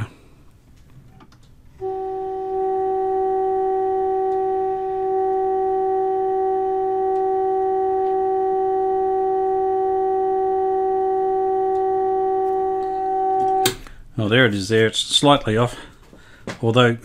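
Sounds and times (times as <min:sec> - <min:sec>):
steady test tone: 0:01.8 - 0:13.8.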